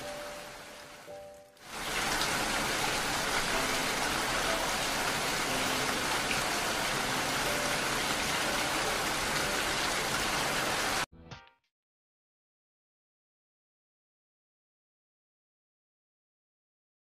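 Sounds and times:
steady rain hiss: 0:00.0 - 0:11.1.

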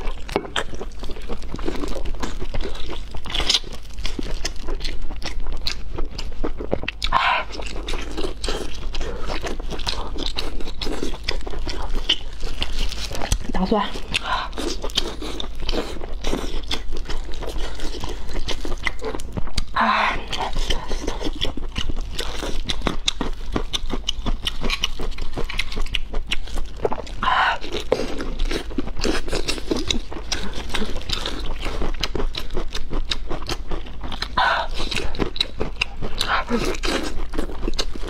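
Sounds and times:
wet chewing and mouth smacking: 0:00.0 - 0:38.0.

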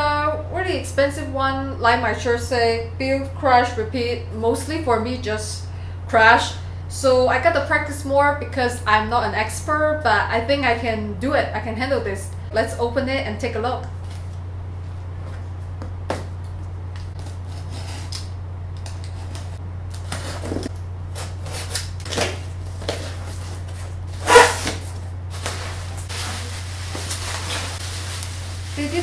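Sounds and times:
steady low hum: 0:00.0 - 0:29.0
cardboard flaps scraping: 0:17.1 - 0:18.2, 0:18.8 - 0:29.0
bubble wrap being pulled: 0:24.5 - 0:29.0.

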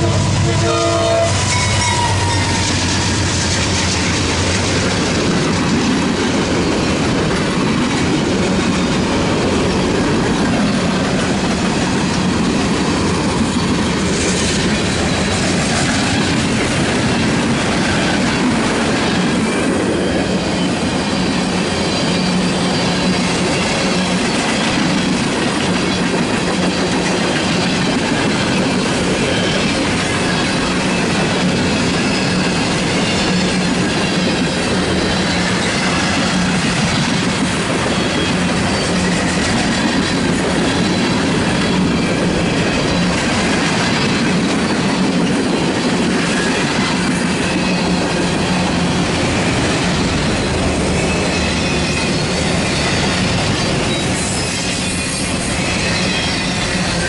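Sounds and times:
train horn: 0:00.0 - 0:03.0
diesel locomotive passing: 0:00.0 - 0:57.0
freight car wheels on rail: 0:00.0 - 0:57.0.

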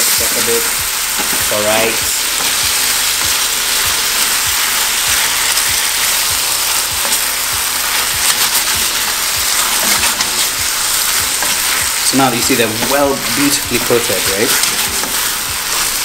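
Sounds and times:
chicken wings sizzling in a pan: 0:00.0 - 0:16.0
wooden spatula stirring: 0:06.9 - 0:16.0.

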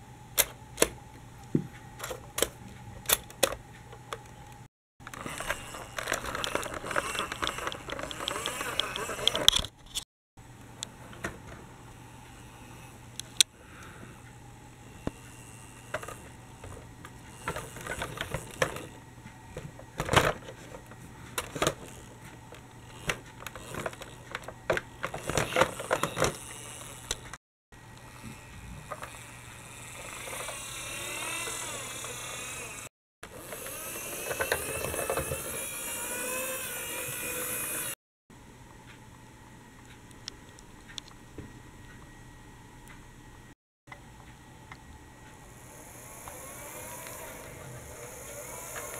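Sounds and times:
plastic toy clicks and knocks: 0:05.0 - 0:10.0, 0:15.9 - 0:18.9, 0:22.9 - 0:27.4, 0:33.5 - 0:37.3.

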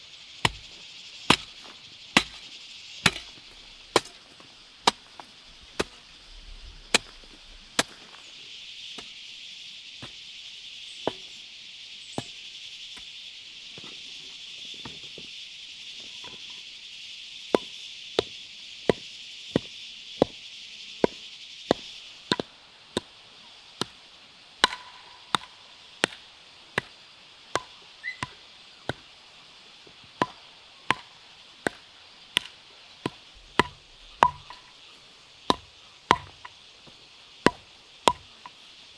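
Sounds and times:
hand tool chopping strikes: 0:00.4 - 0:00.6, 0:03.0 - 0:03.3, 0:04.0 - 0:04.2, 0:21.0 - 0:23.1, 0:24.6 - 0:26.2, 0:30.2 - 0:31.8, 0:32.4 - 0:34.7, 0:35.5 - 0:36.5, 0:37.4 - 0:38.6.

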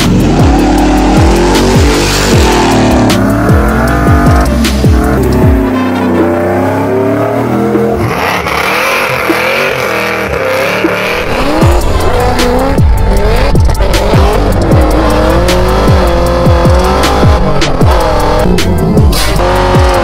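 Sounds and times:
steady drum beat: 0:00.0 - 0:05.8, 0:11.0 - 0:20.0
heavy bass with falling slides: 0:00.0 - 0:08.2, 0:10.8 - 0:20.0.

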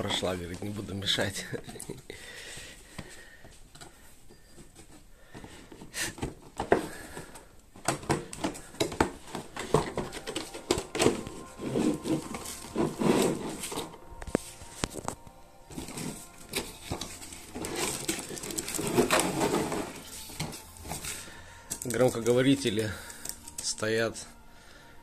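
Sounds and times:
packaging rustling and crinkling: 0:04.5 - 0:24.0.

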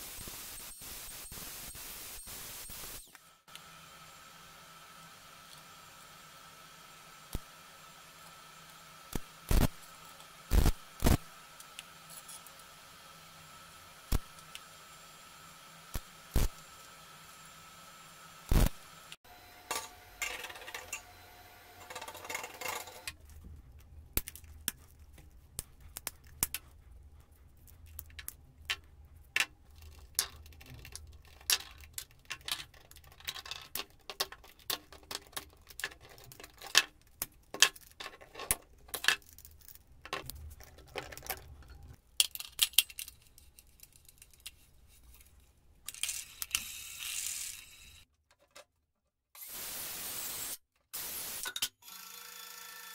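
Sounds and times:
steady hiss: 0:00.0 - 0:03.0
metal parts and tools clinking: 0:37.5 - 0:45.2.

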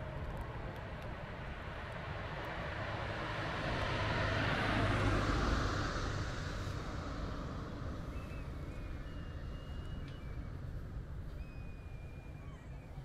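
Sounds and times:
low outdoor rumble: 0:00.0 - 0:13.0
faint high whistles: 0:08.0 - 0:10.7, 0:11.3 - 0:13.0.

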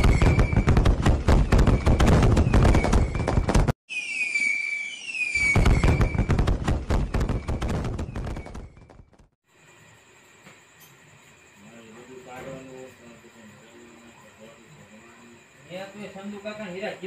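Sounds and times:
crackling firework bangs: 0:00.0 - 0:03.8, 0:05.1 - 0:09.3
rockets whistling: 0:00.0 - 0:08.9.

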